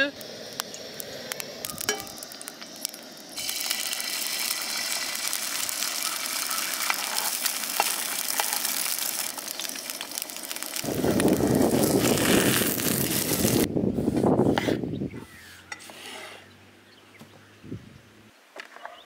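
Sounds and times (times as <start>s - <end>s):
egg sizzling in oil: 0.0s - 13.7s
egg cracking clicks: 0.2s - 13.7s.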